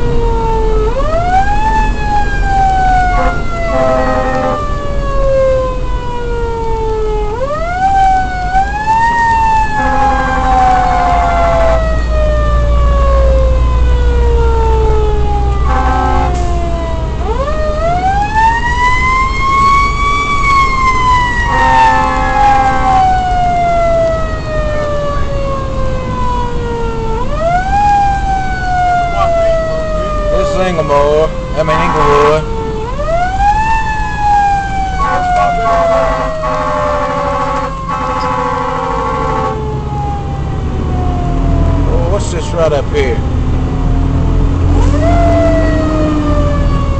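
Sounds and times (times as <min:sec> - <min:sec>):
engine rumbling: 0:00.0 - 0:46.9
fire engine siren wailing: 0:00.0 - 0:46.9
air horn blasts: 0:03.0 - 0:04.7, 0:09.8 - 0:11.9, 0:15.6 - 0:16.6, 0:21.4 - 0:23.2, 0:31.6 - 0:32.4, 0:35.0 - 0:39.7.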